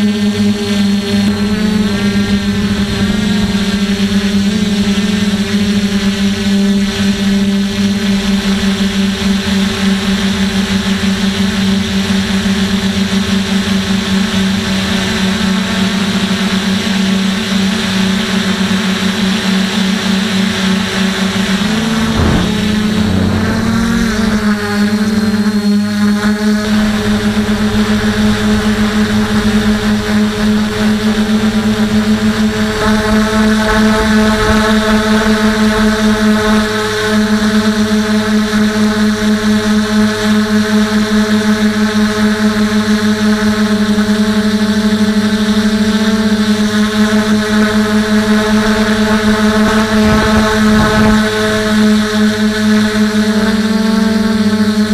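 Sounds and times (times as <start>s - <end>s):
drone motors buzzing: 20.6s - 25.7s
higher tone: 21.3s - 25.4s.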